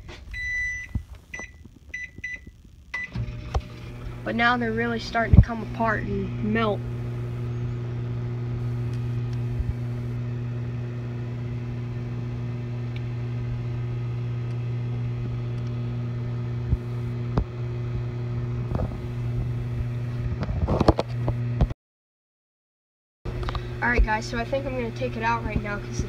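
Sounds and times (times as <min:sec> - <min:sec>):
microwave oven humming: 0:00.0 - 0:21.7, 0:23.3 - 0:26.0.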